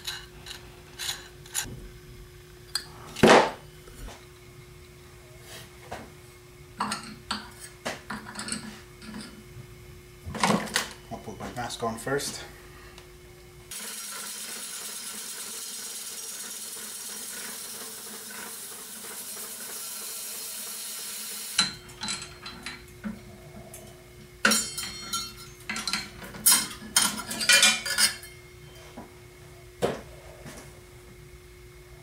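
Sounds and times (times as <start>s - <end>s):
sandpaper hissing against spinning blade: 13.7s - 21.6s.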